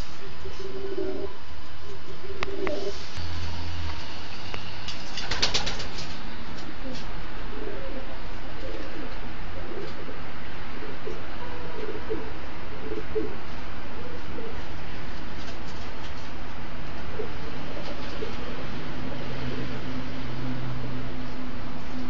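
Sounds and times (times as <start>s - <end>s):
pigeons cooing: 0.0s - 3.0s, 6.7s - 14.8s, 17.0s - 20.4s.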